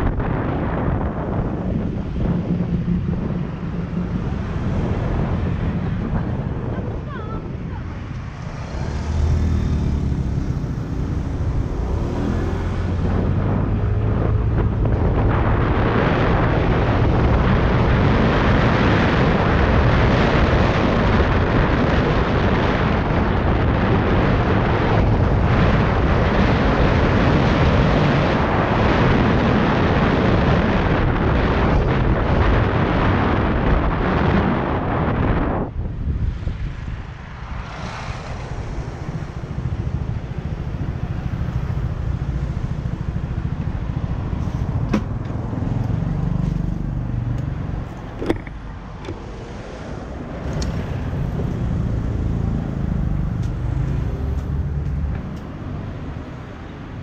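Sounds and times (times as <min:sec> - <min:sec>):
scooter engine humming: 0:00.0 - 0:18.6, 0:37.5 - 0:57.0
wind rushing over microphone: 0:00.0 - 0:57.0.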